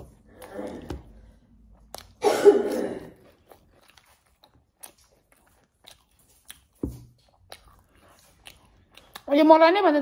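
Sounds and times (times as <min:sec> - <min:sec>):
quiet chewing: 0:00.0 - 0:02.2, 0:02.8 - 0:09.6
wet mouth clicks: 0:01.6 - 0:02.2.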